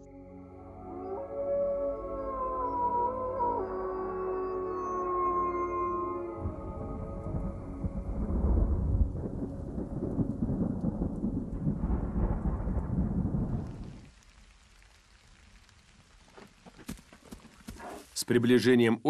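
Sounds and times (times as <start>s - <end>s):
rain: 6.0s - 19.0s
rolling thunder: 6.4s - 14.9s.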